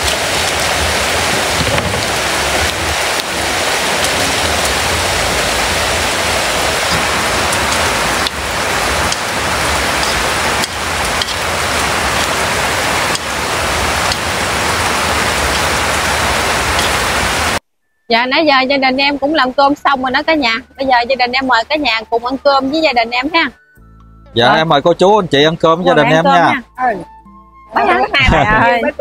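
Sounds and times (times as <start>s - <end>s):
food sizzling in a wok: 0.0s - 17.6s.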